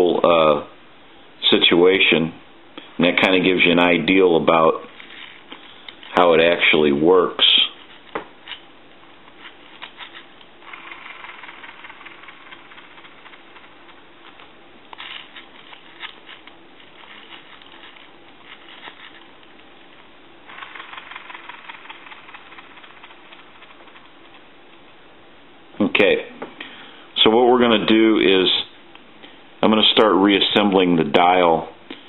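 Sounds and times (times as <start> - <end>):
rotary dial whirring and ticking: 9.3 - 24.9.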